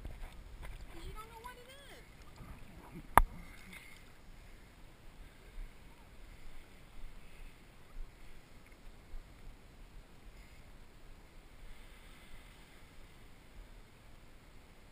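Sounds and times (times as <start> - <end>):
water sloshing from wading: 0.0 - 9.4.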